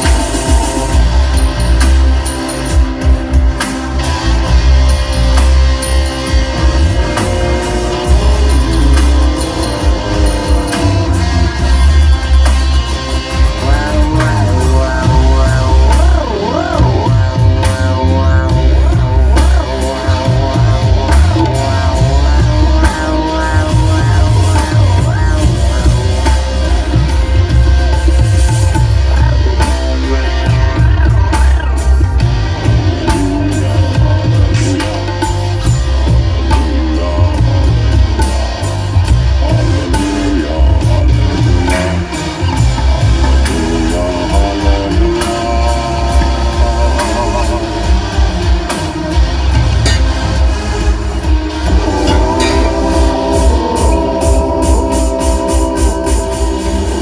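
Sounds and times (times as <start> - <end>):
live band music: 0.0 - 57.0
man singing into a microphone: 13.4 - 50.0, 51.5 - 57.0.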